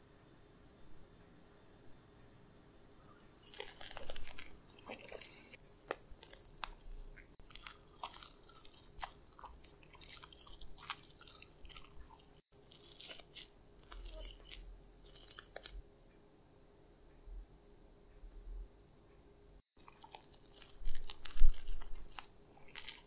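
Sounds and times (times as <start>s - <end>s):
crust crackling and crunching: 3.2s - 15.8s, 19.7s - 23.0s.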